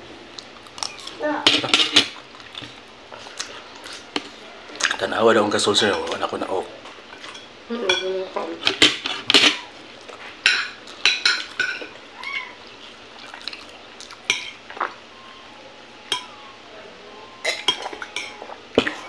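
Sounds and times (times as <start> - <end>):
chewing smacks and clicks: 12.6 - 15.0.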